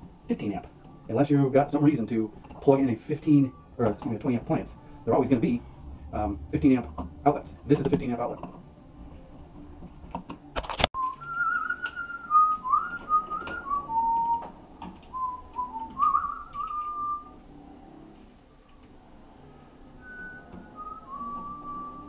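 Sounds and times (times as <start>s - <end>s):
man whistling a tune: 11.0s - 14.5s, 15.1s - 17.4s, 20.0s - 22.0s.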